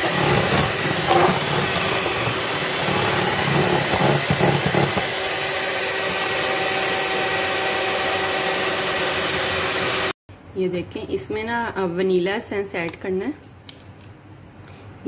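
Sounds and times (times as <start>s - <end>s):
electric mixer whirring: 0.0s - 10.2s.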